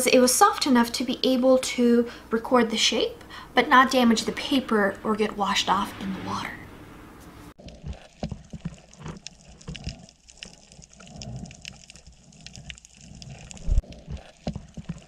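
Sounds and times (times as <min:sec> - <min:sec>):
underwater knocks and bumps: 0:07.6 - 0:11.9.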